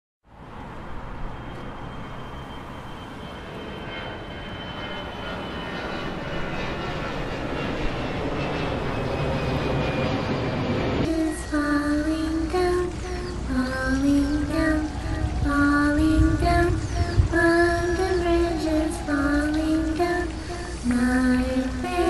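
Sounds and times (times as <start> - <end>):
engine-like drone with whine: 0.3 - 22.0.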